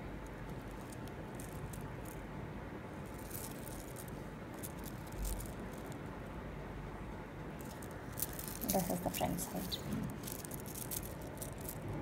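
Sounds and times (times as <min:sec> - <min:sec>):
steady background hiss: 0:00.0 - 0:12.0
necklace links clinking and rattling: 0:00.4 - 0:02.2, 0:03.0 - 0:06.0, 0:07.6 - 0:11.8.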